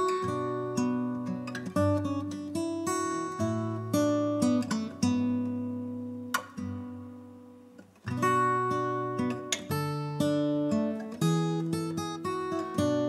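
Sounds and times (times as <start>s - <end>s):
acoustic guitar strummed chords: 0.0s - 13.0s.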